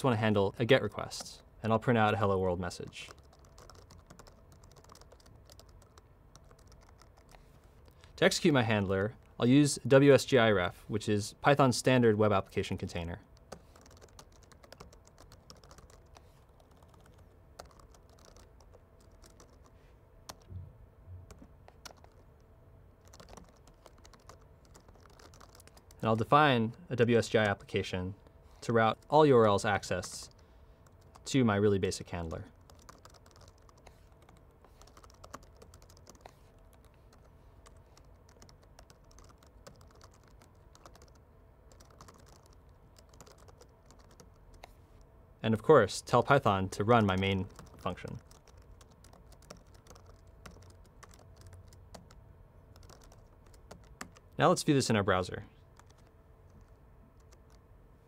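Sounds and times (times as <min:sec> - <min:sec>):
low steady hum: 0:00.0 - 0:58.0
typing on keyboard: 0:02.8 - 0:08.0, 0:13.4 - 0:19.7, 0:20.3 - 0:20.5, 0:21.3 - 0:22.3, 0:23.0 - 0:27.8, 0:28.9 - 0:31.3, 0:32.5 - 0:44.7, 0:47.0 - 0:54.3, 0:55.7 - 0:57.6.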